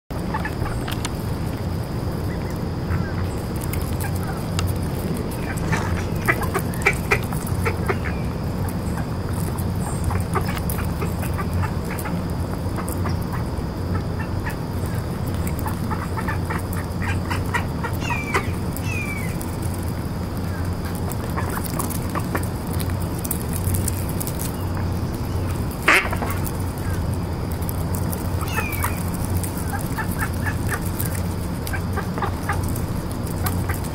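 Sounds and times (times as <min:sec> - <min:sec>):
steady low hum: 0:00.1 - 0:33.9
ducks pecking clicks: 0:00.2 - 0:33.9
duck calls: 0:05.4 - 0:08.3, 0:15.6 - 0:19.4, 0:25.8 - 0:27.0, 0:28.4 - 0:32.6.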